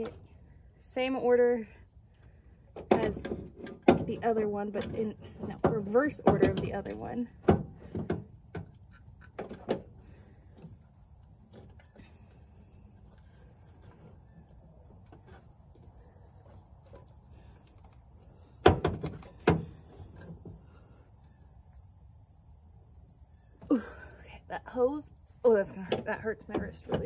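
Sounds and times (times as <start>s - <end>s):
insects chorus: 0.0s - 27.0s
sharp knocks: 18.6s - 19.8s.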